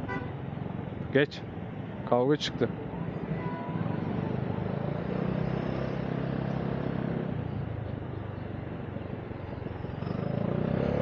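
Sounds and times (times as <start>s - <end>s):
road and wind noise: 0.0s - 11.0s.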